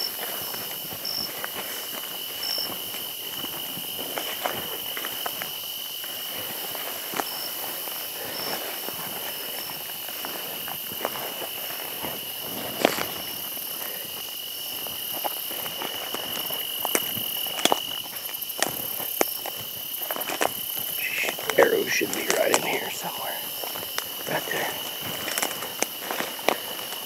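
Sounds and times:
high insect drone: 0.0s - 27.0s
footsteps through weeds: 22.3s - 27.0s.

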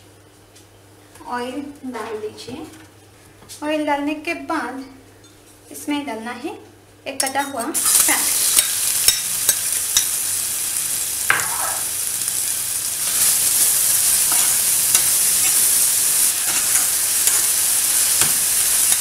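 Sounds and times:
onion sizzling in hot oil: 7.8s - 19.0s.

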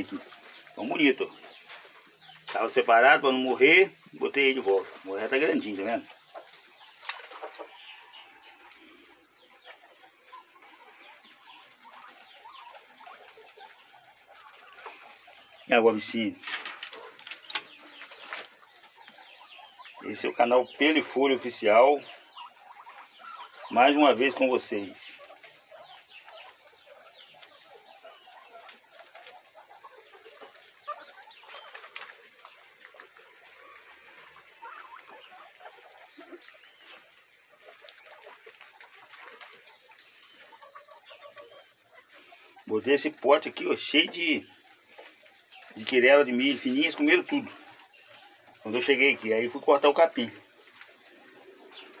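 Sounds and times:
guinea pigs chirping and squeaking: 0.0s - 52.0s
soft clucking: 0.0s - 52.0s
rustling and small clicks: 16.4s - 19.2s, 28.5s - 41.1s.

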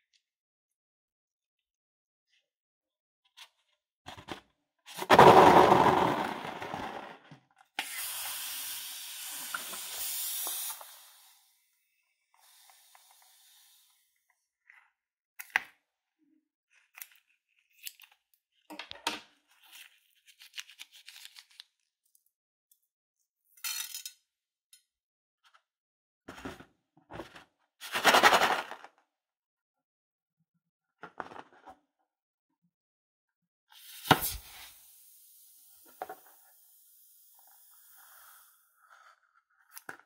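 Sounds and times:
air rushing out of balloon: 7.8s - 11.5s
thin hiss: 7.8s - 11.6s, 12.4s - 14.0s, 33.8s - 38.6s.

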